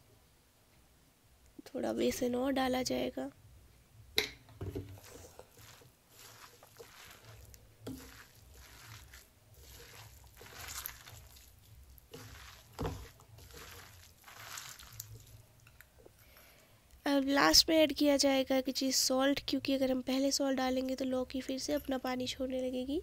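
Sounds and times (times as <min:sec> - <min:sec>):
batter squishing in a bowl: 0:04.7 - 0:16.2.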